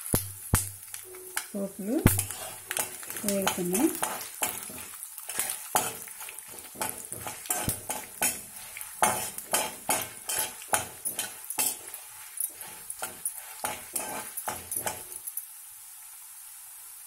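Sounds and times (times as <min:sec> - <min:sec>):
metal spatula scraping a pan: 0:00.0 - 0:15.3
oil sizzling: 0:00.0 - 0:17.0.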